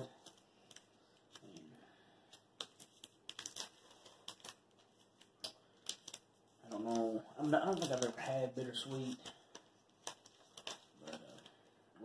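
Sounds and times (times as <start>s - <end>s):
wrapper crinkling: 2.3s - 11.7s.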